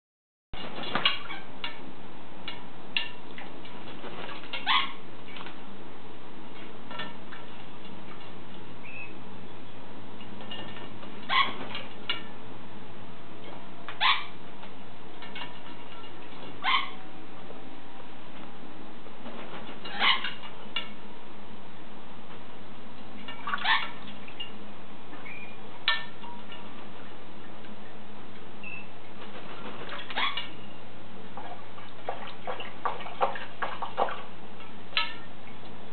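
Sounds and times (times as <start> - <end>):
parrot calling: 4.5 - 5.0, 11.2 - 11.6, 13.9 - 14.4, 16.0 - 17.1, 19.8 - 20.5, 23.4 - 26.4, 30.1 - 30.8
parrot chirping: 4.5 - 5.0, 8.8 - 9.2, 11.3 - 11.6, 14.0 - 14.4, 16.6 - 17.1, 19.9 - 20.5, 23.4 - 26.4, 28.6 - 29.0, 30.1 - 30.8
parrot splashing in water: 31.4 - 35.3.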